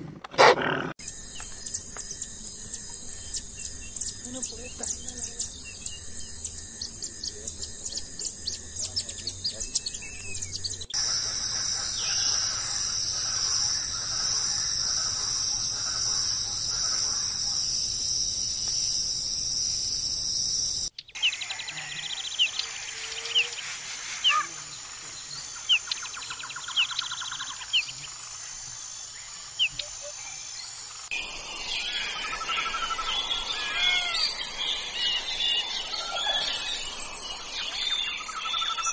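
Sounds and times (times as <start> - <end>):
birds chirping and trilling: 0.4 - 38.9
high-pitched insect drone: 1.0 - 38.9.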